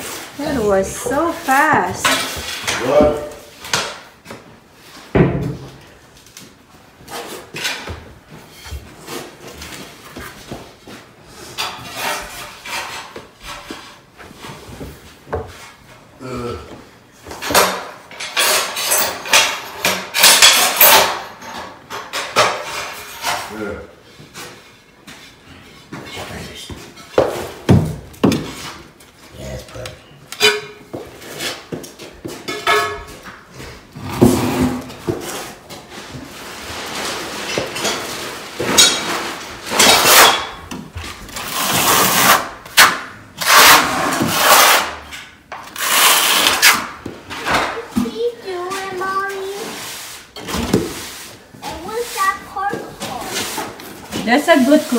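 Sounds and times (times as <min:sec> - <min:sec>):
knocks and scrapes on ceramic tiles: 0:00.0 - 0:04.4, 0:11.3 - 0:15.8, 0:17.2 - 0:23.6, 0:29.6 - 0:54.9
trowel scraping mortar on concrete: 0:41.4 - 0:42.6, 0:43.4 - 0:45.1, 0:45.7 - 0:46.9.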